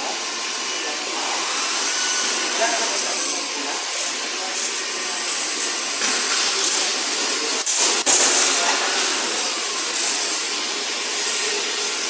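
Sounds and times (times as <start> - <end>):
loud hissing hall noise: 0.0 - 12.0.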